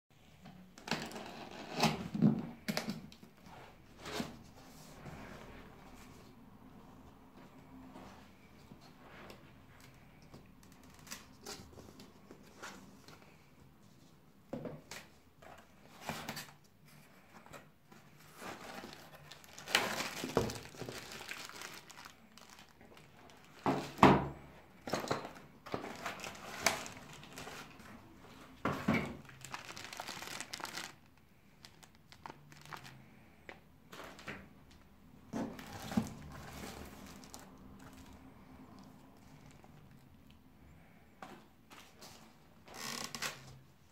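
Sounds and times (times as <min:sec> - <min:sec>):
plastic packaging crinkling: 0:18.3 - 0:24.0, 0:25.3 - 0:28.0, 0:29.2 - 0:33.2, 0:35.5 - 0:38.2.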